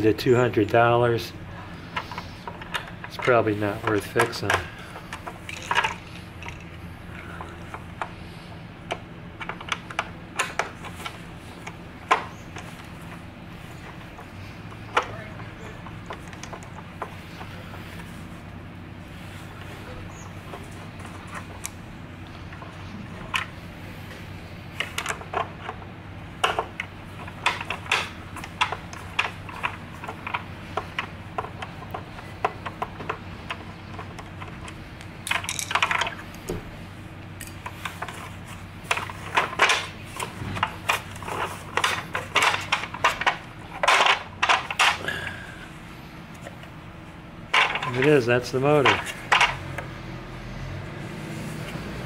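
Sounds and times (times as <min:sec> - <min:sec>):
plastic housing knocking and rattling: 0:38.9 - 0:45.0.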